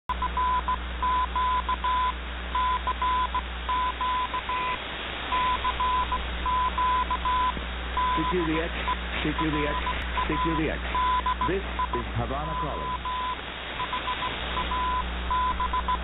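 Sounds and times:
low hum: 0.1s - 16.0s
morse code beeps: 0.1s - 16.0s
shortwave background hiss: 0.1s - 16.0s.

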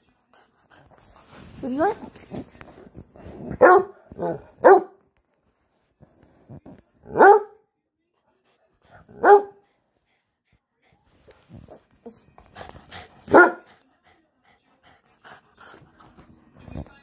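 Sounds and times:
dog barking: 3.6s - 5.0s, 7.1s - 7.6s, 9.1s - 9.6s, 13.3s - 13.7s.

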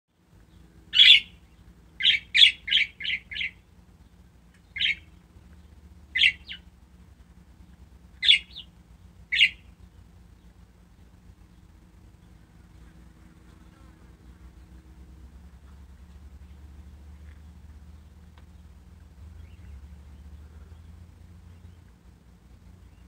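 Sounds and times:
budgerigars chirping: 0.5s - 3.6s, 4.6s - 6.7s, 8.2s - 8.7s, 9.3s - 10.5s, 19.4s - 21.9s.

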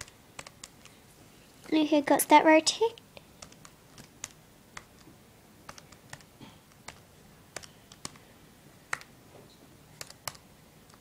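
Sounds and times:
calculator keys clicking: 0.0s - 0.9s, 3.4s - 5.1s, 5.7s - 8.2s, 10.0s - 11.0s.

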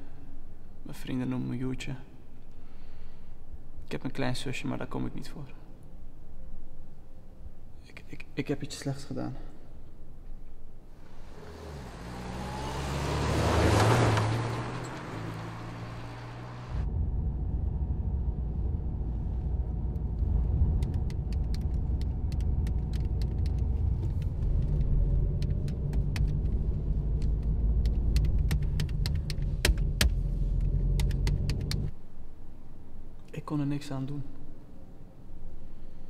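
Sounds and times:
low hum: 9.6s - 33.3s
car driving rumble inside cabin: 11.0s - 31.9s
small irregular clicks: 20.7s - 31.9s.

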